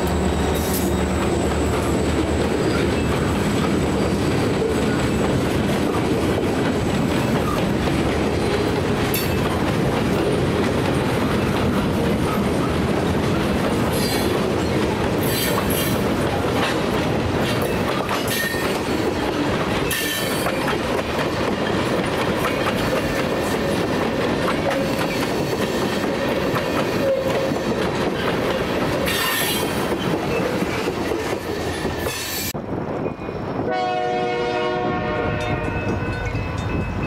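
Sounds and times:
train wheels clattering over rails: 0.0s - 33.1s
locomotive horn chord: 33.7s - 36.0s.

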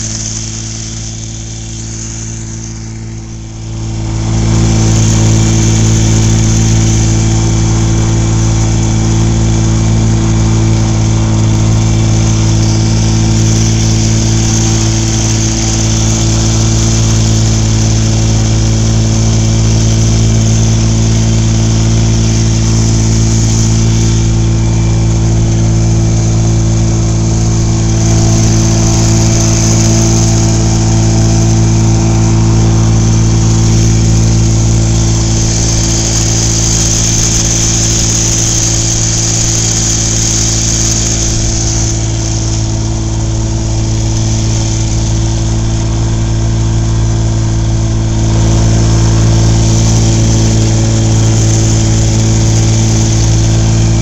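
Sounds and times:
boat motor running: 0.0s - 54.0s
steady hiss: 0.0s - 54.0s.

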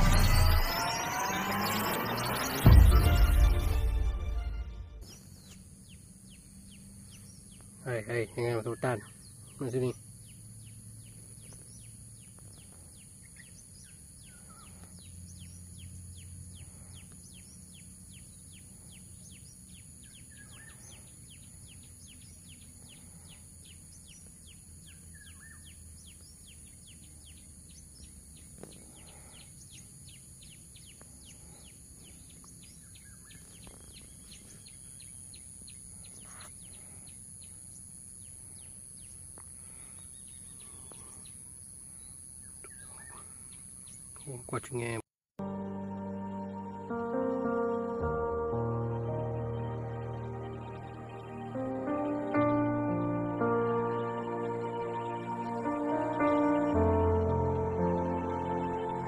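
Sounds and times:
high-pitched insect drone: 0.0s - 3.2s
rapid repeated chirp: 0.0s - 3.2s, 42.6s - 44.9s
bird chirps: 0.0s - 3.9s, 5.0s - 59.0s.

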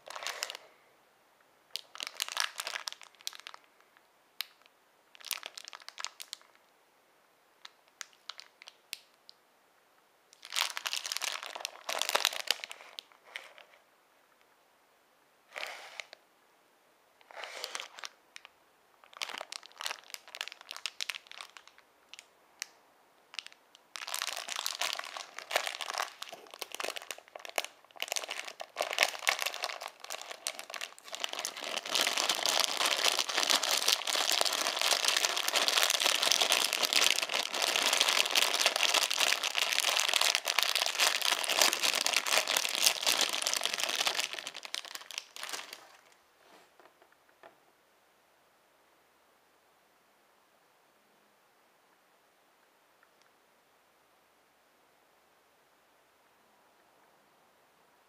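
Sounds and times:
plastic bag crinkling: 0.0s - 0.7s, 1.8s - 3.7s, 4.4s - 6.6s, 10.4s - 13.8s, 17.3s - 22.3s, 23.3s - 46.2s.

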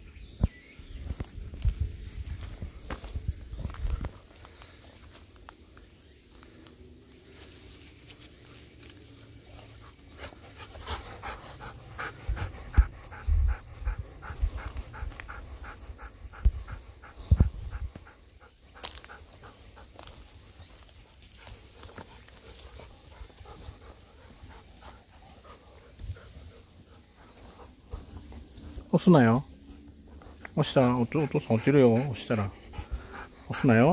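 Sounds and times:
dog panting: 9.5s - 33.9s.

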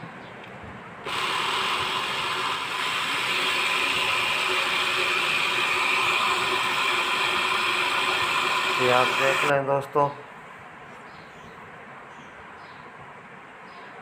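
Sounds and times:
blender grinding sugar: 1.1s - 9.5s.

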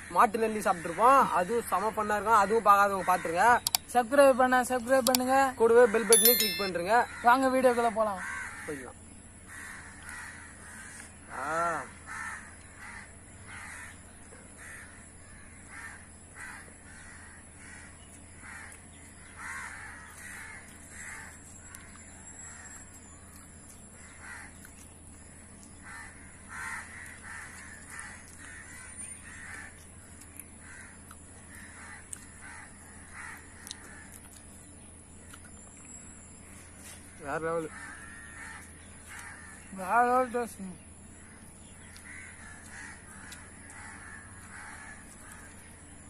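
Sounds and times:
crows cawing: 0.0s - 3.8s, 8.1s - 22.8s, 24.0s - 24.6s, 25.7s - 34.5s, 36.9s - 40.3s, 41.1s - 46.0s
low background hum: 0.0s - 46.0s.

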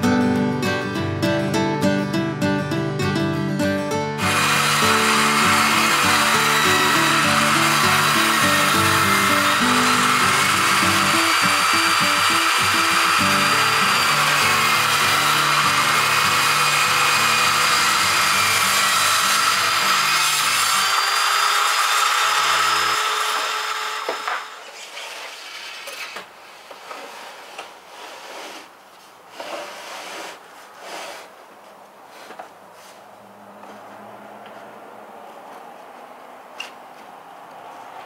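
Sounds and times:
table saw cutting wood: 4.2s - 26.2s.

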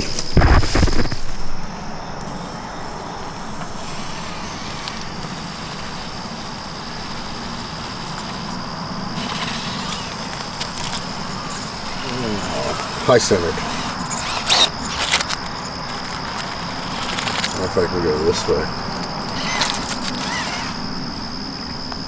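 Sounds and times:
toy car motor whining: 3.6s - 21.4s.

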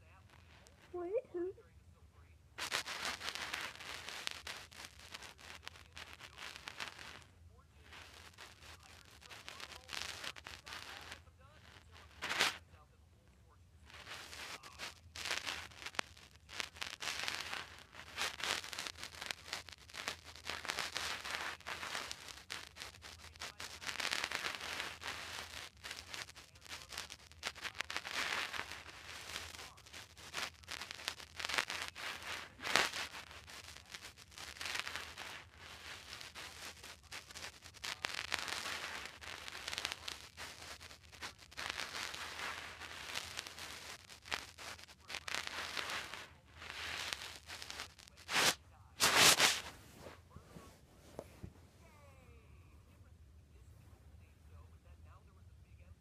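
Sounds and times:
faint low hum: 0.0s - 18.2s, 48.1s - 56.0s
microphone handling crackling: 2.2s - 12.8s, 13.4s - 52.0s.

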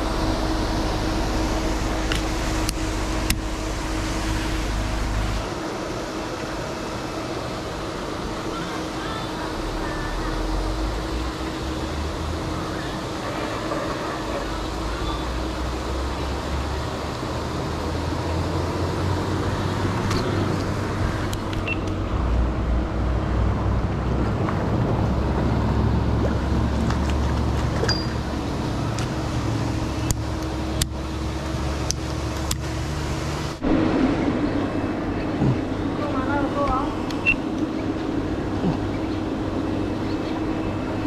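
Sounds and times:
low motor hum: 0.0s - 41.0s
spraying water: 0.0s - 41.0s.

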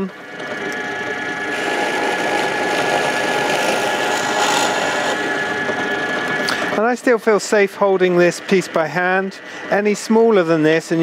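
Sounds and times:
pillar drill motor whine: 0.0s - 11.0s
drill bit boring through wood: 0.3s - 9.9s.

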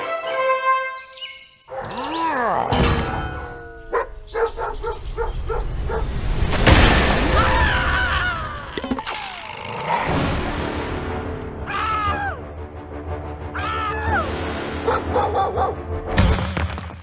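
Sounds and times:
chirping squeaks: 1.2s - 6.0s
loud crash: 6.2s - 8.0s.

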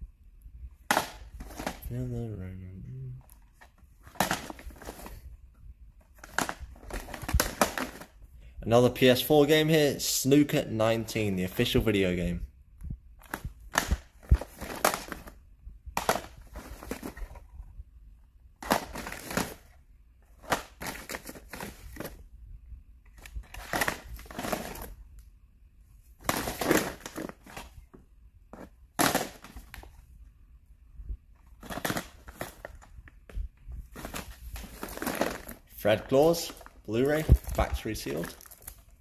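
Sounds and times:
plastic cases clacking: 0.8s - 1.9s, 3.2s - 5.3s, 6.0s - 8.2s, 13.2s - 17.7s, 18.6s - 22.3s, 23.1s - 25.0s, 26.2s - 30.0s, 31.4s - 38.9s
plastic bag rustling: 3.5s - 5.3s, 6.0s - 8.2s, 13.2s - 15.4s, 16.0s - 17.6s, 18.6s - 22.2s, 23.2s - 25.0s, 26.0s - 27.9s, 31.4s - 33.1s, 33.7s - 39.0s.

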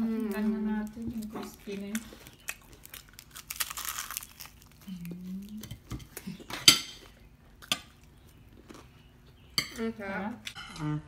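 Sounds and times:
biting into crispy chicken: 2.2s - 4.9s.

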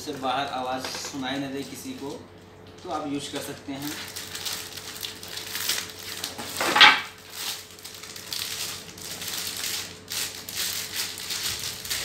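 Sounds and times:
cardboard and plastic packaging rustling: 2.7s - 12.0s
loud crackle: 3.8s - 12.0s.

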